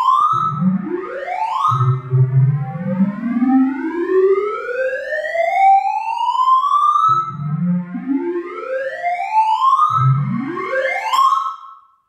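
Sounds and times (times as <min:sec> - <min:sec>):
computer tones climbing in pitch: 0:09.9 - 0:11.2.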